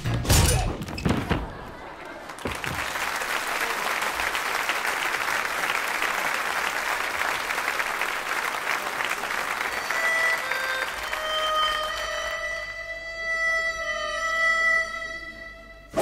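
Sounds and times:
audience applauding: 1.5s - 12.4s.

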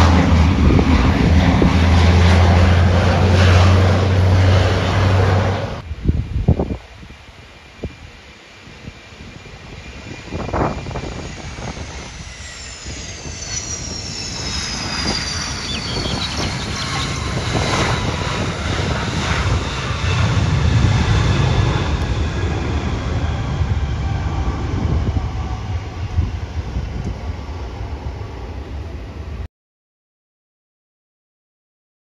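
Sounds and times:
deep jet rumble: 0.0s - 29.5s
jet engine whines falling in pitch: 0.0s - 29.5s.

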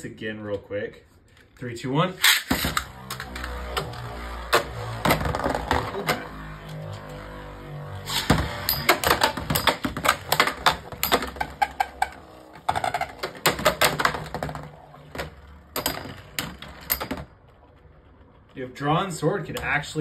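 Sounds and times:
spinning tops clacking together: 8.1s - 17.2s.

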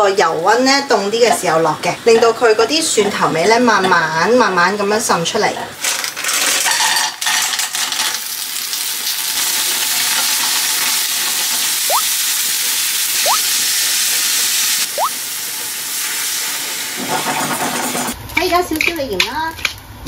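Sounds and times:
loud sizzle of frying: 0.0s - 20.0s
short rising chirps: 11.9s - 12.1s, 13.2s - 13.5s, 14.9s - 15.1s.

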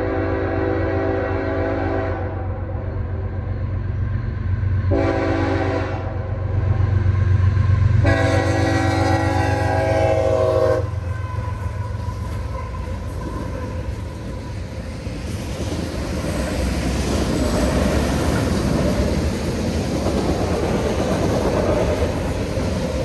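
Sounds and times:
locomotive horn blasts: 0.0s - 2.5s, 4.9s - 6.3s, 8.0s - 13.0s.

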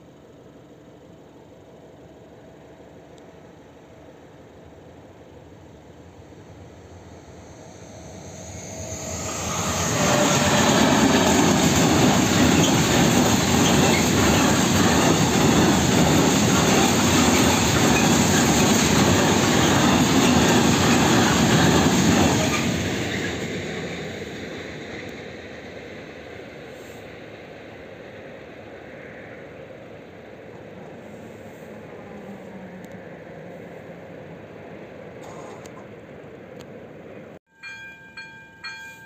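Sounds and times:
train rumbling past: 4.6s - 39.0s
wheels rumbling on rails: 6.9s - 37.4s.

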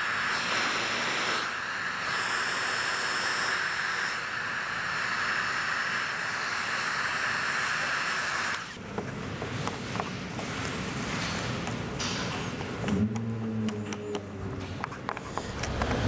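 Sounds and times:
heat gun blower hissing: 0.0s - 8.8s.

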